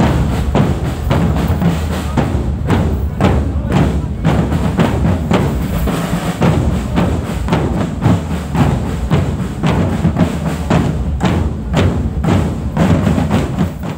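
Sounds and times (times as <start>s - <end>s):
marching bass drums: 0.0s - 13.9s
snare drums: 0.0s - 13.9s.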